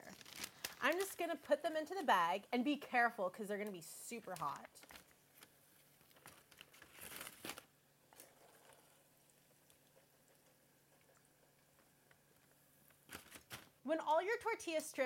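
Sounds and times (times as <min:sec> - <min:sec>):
paper bag rustling: 0:04.3 - 0:07.7.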